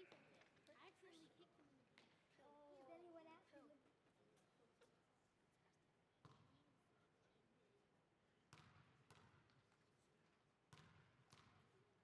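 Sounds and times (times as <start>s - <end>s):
basketball bouncing on hardwood floor: 10.7s - 11.6s.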